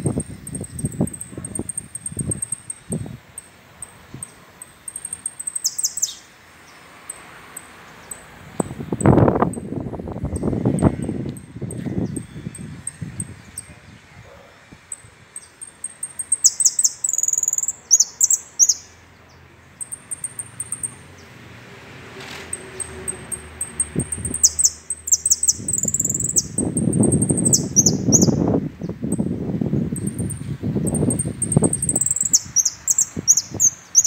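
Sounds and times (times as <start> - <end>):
finch chirping and trilling: 0.0 - 6.3, 14.9 - 21.3, 22.5 - 29.3, 30.0 - 34.0.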